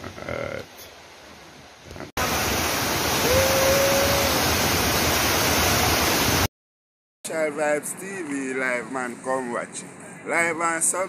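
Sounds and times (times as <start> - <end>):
waterfall rushing: 2.2 - 6.5.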